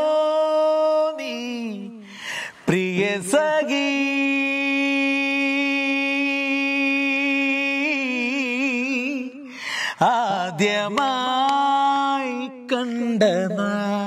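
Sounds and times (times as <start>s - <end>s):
man singing unaccompanied: 0.0s - 14.0s
singer breathing: 2.0s - 2.7s, 9.4s - 10.1s.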